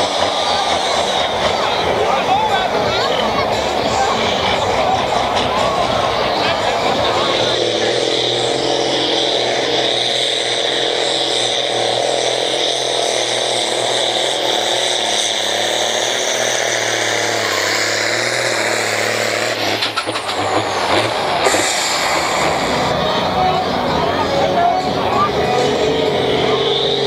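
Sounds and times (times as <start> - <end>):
tractor engine at full throttle: 0.0 - 27.0.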